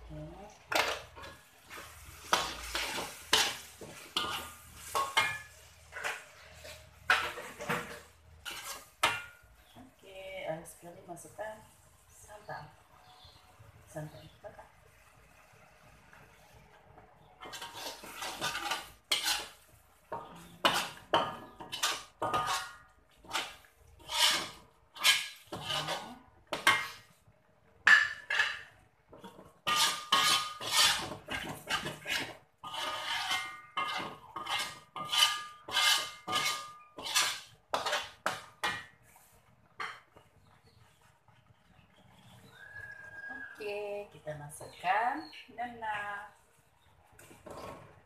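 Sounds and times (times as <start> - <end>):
spatula scraping a wok: 0.5 - 9.8, 17.3 - 27.3, 27.9 - 41.1, 47.2 - 48.0
metallic ring of wok: 2.2 - 7.4, 8.4 - 9.8, 17.4 - 27.1, 27.8 - 38.9.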